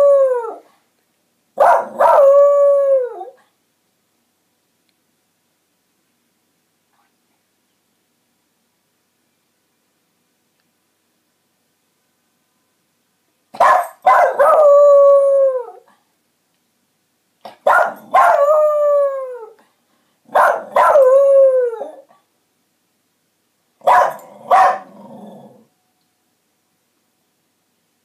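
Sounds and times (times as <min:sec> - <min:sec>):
dog yipping: 0:13.6 - 0:14.6, 0:23.9 - 0:24.9.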